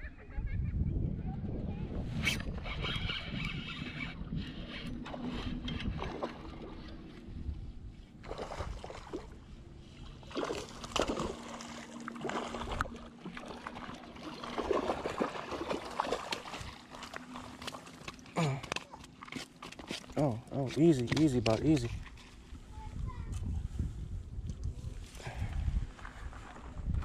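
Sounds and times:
wind rumble on microphone: 0.0 - 11.2, 21.3 - 27.0
fishing reel clicking: 2.6 - 5.0
water splashing: 8.2 - 9.5, 10.1 - 20.3.

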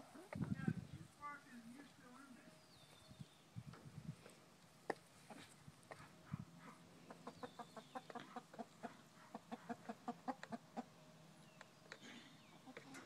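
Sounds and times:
hens clucking: 4.9 - 6.3, 7.0 - 13.0.

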